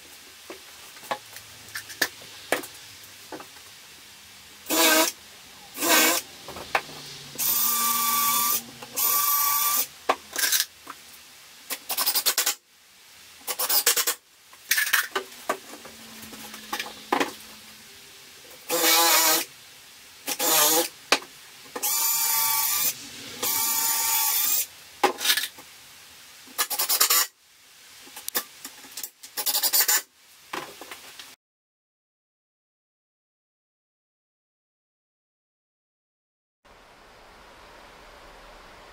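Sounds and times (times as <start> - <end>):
drill driving screws into wood: 4.7 - 5.2, 5.8 - 6.2, 7.4 - 10.7, 18.7 - 19.5, 20.3 - 20.9, 21.8 - 24.7, 26.6 - 27.3.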